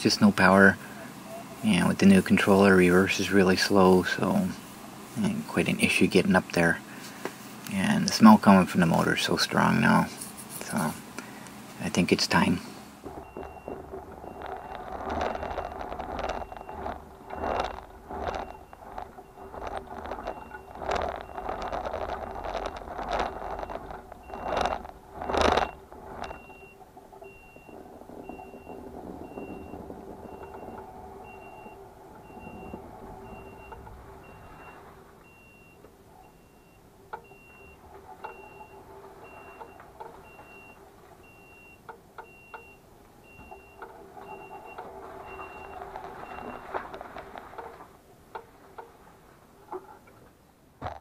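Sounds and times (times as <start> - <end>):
steady low hum: 0.0 - 50.2
reverse warning beeper: 11.9 - 46.9.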